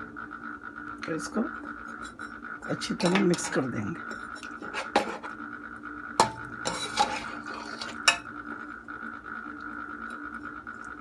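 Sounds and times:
spoon scraping pot: 1.9s - 5.4s, 6.2s - 8.3s.

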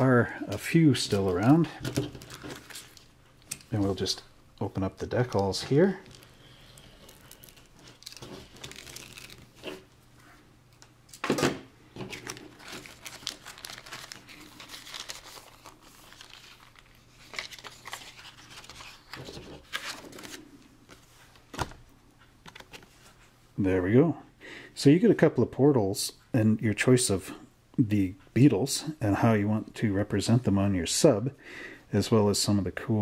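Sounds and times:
paper and plastic bag rustling: 0.6s - 3.1s, 5.2s - 9.9s, 12.0s - 21.1s.

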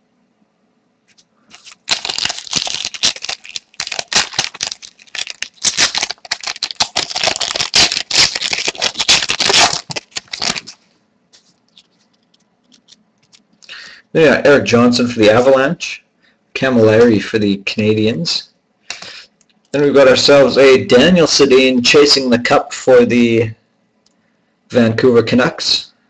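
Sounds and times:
wrapper crinkling and tearing: 1.5s - 10.8s, 11.7s - 13.4s.

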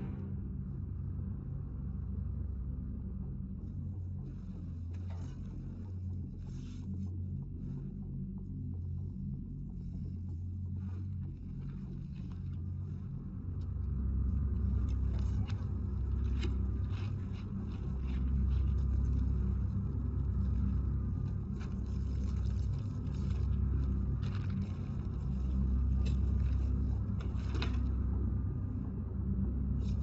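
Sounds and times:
deep rumbling drone: 0.0s - 30.0s
faint handling scrapes and clicks: 20.4s - 28.0s.

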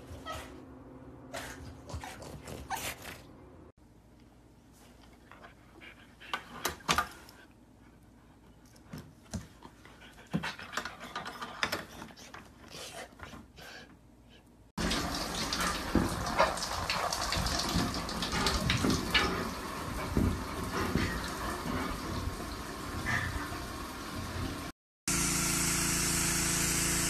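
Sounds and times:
shower water spraying on glass: 14.8s - 24.7s.

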